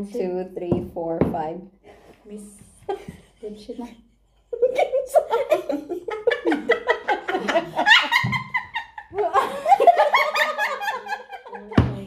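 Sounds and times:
women laughing together: 2.8 - 11.9.

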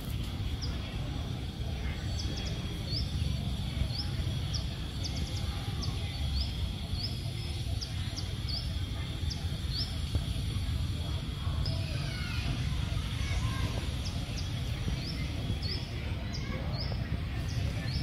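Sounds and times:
small bird chirping: 0.0 - 12.2
low outdoor rumble: 0.0 - 18.0.

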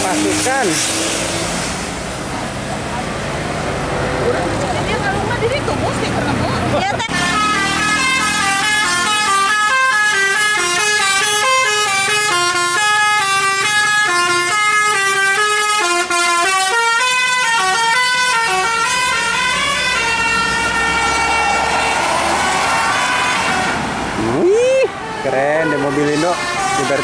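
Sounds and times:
musical air horn playing a tune: 7.1 - 21.4.

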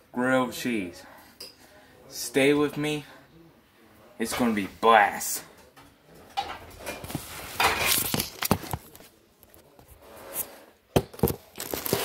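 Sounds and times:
phone handling rustling: 7.0 - 9.6.

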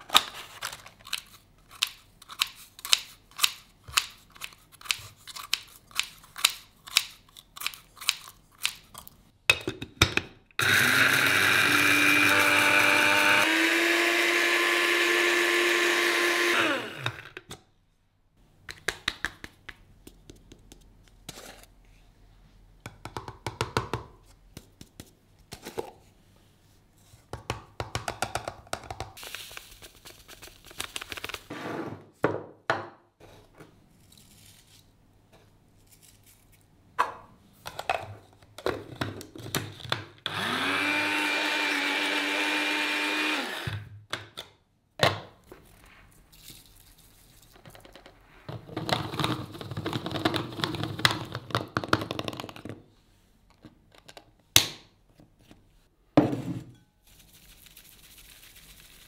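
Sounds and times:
electric spice grinder running: 10.6 - 17.3, 40.3 - 43.8.

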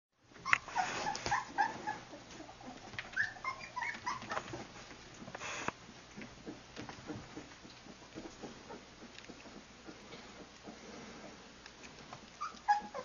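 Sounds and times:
puppies yipping and whining: 0.3 - 4.7, 12.3 - 13.0.

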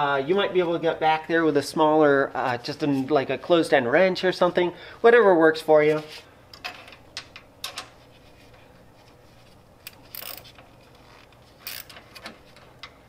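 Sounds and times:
socket ratchet clicking: 11.6 - 13.0.

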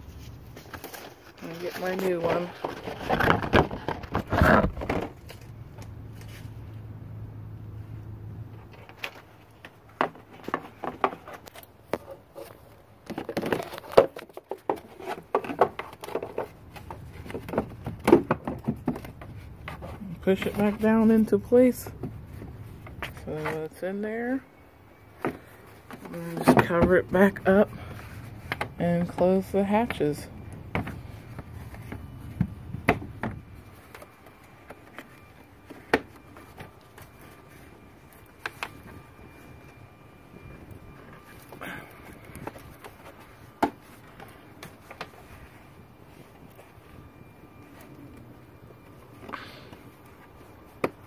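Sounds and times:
plastic rustling: 0.0 - 6.6, 8.7 - 23.6.

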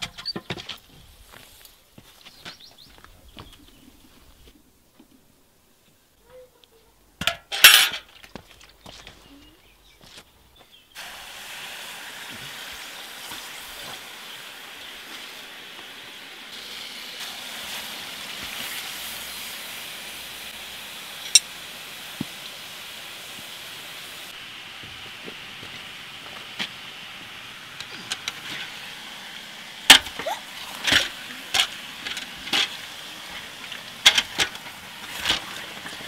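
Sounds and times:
hissing sizzle of boiling water: 10.8 - 36.0.

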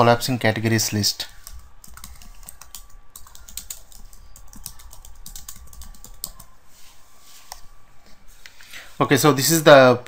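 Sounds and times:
typing on computer keyboard: 1.4 - 6.5.

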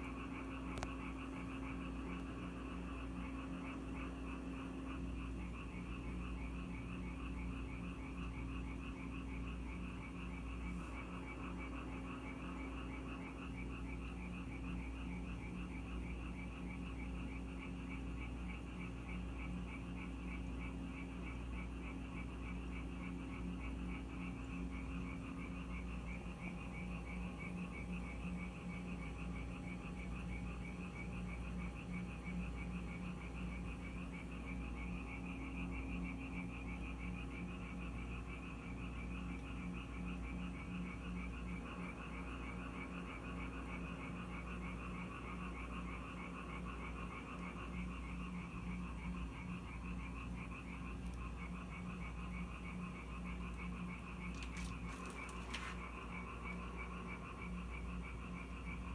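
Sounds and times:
frogs croaking in chorus: 0.0 - 58.9.

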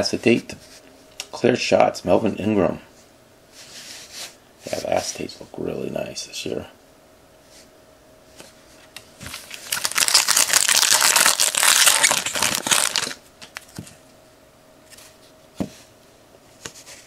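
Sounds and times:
foil wrapper crinkling: 9.3 - 13.7.

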